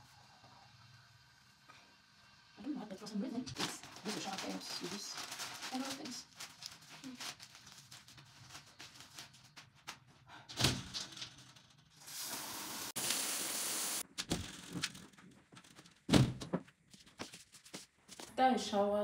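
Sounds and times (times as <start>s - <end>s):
hiss: 12.0s - 14.0s.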